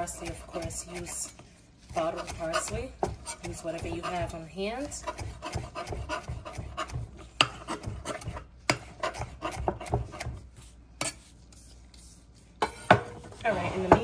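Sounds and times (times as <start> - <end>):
knife chopping on stone board: 1.9 - 10.4.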